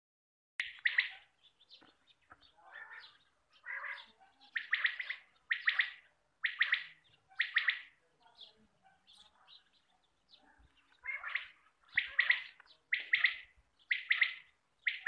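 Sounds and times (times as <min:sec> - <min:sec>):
quail calling: 0:00.6 - 0:01.4, 0:02.3 - 0:08.0, 0:10.5 - 0:15.0.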